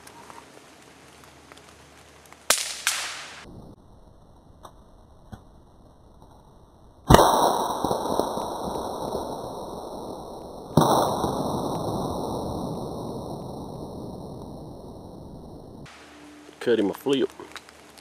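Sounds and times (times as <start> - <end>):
rifle shots with echo: 2.5 - 3.4.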